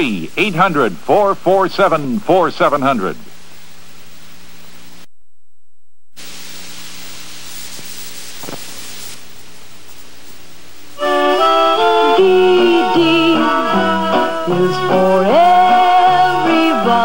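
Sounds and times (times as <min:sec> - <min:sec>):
tape hiss: 0:00.0 - 0:05.1, 0:06.1 - 0:17.0
music: 0:11.0 - 0:17.0.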